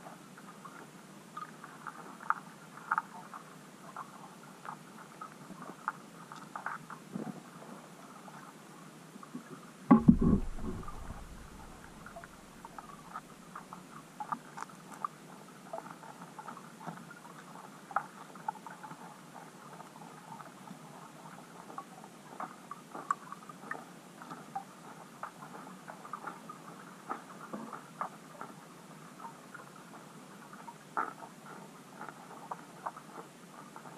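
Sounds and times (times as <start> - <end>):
underwater small clicks: 1.4 - 7.0, 9.9 - 17.2, 21.7 - 28.6
loud knock: 9.9 - 12.2
short low rumble: 9.9 - 12.8.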